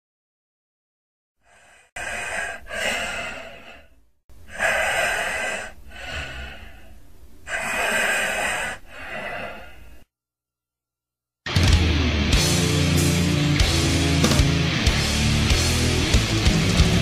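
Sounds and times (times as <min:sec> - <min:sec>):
heavy deep breathing: 0:01.4 - 0:10.1.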